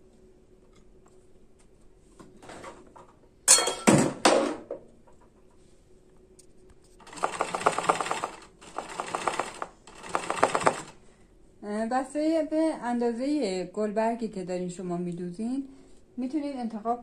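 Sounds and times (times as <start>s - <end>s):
sewing machine stitching: 7.0s - 11.0s.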